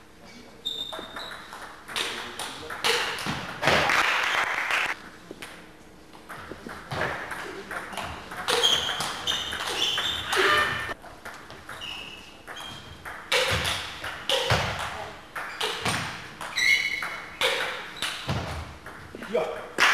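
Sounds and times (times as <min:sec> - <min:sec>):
shoe squeaks: 0:00.2 - 0:01.6, 0:08.0 - 0:11.0, 0:11.7 - 0:14.7, 0:15.4 - 0:18.4.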